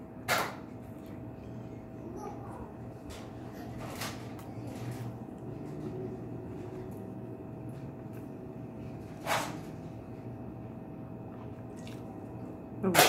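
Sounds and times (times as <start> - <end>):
low hum: 0.0 - 13.0
faint chewing: 11.3 - 12.4.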